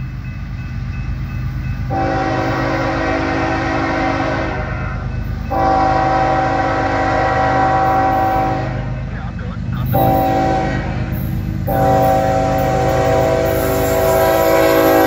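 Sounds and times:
locomotive engine rumble: 0.0 - 15.0
locomotive horn blasts: 1.9 - 9.1, 9.8 - 15.0.

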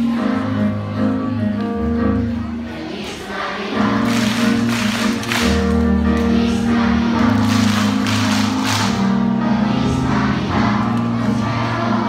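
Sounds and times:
children's choir singing: 0.0 - 12.0
hand claps: 4.0 - 6.3, 7.4 - 9.1.

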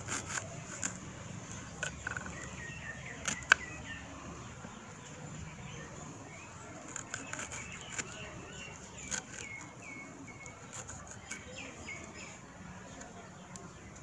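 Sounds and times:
bird chirps: 1.8 - 14.0.

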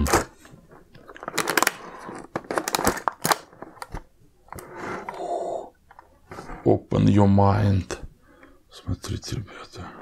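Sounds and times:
plastic blister pack crackling: 1.0 - 4.0.

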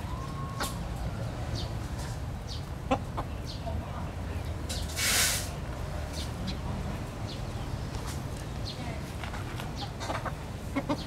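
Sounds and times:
chickens chirping: 0.0 - 5.0, 9.5 - 11.0
short hiss: 4.9 - 5.5.

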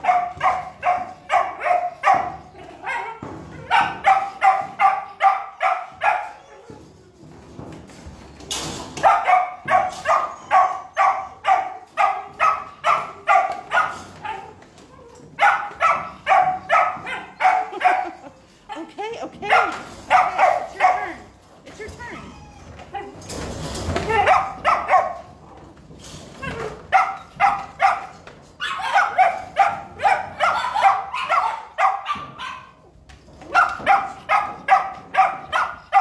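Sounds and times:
dog barking: 0.0 - 6.4, 9.0 - 14.5, 15.4 - 18.2, 19.5 - 21.2, 24.2 - 25.3, 26.9 - 32.8, 33.5 - 36.0.

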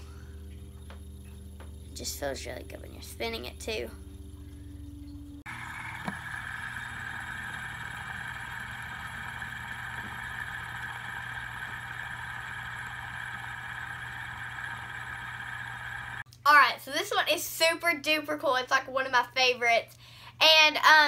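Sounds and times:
fidget spinner whirring: 0.0 - 16.2.

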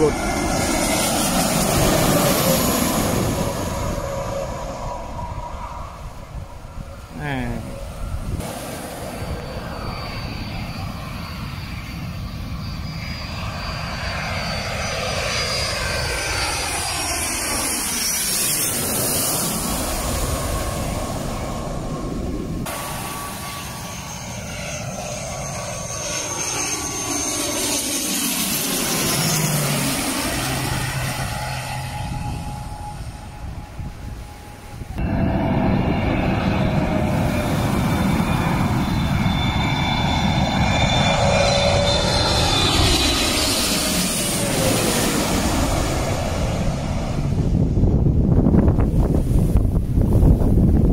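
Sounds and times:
jet airliner passing overhead: 0.0 - 50.9
turboprop airliner passing overhead: 0.0 - 50.9.

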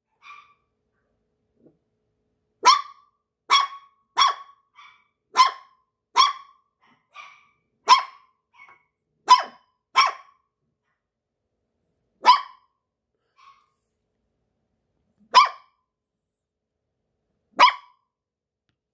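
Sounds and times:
puppy yapping: 0.1 - 0.7, 2.6 - 10.4, 12.2 - 12.7, 13.4 - 13.8, 15.3 - 15.8, 17.6 - 18.0.

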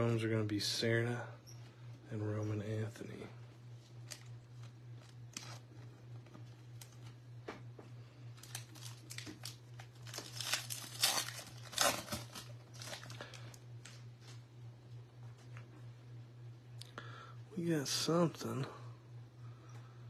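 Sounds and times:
steady low hum: 0.0 - 20.0
wrapper tearing and crinkling: 8.4 - 13.4.

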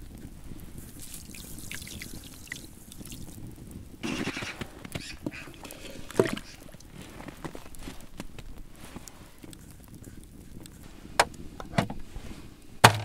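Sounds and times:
short rushing water: 1.0 - 3.4, 5.3 - 6.9.

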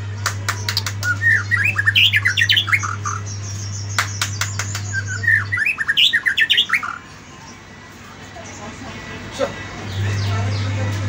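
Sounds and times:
steady low hum: 0.0 - 11.0
bird singing whistled notes: 0.7 - 7.0.

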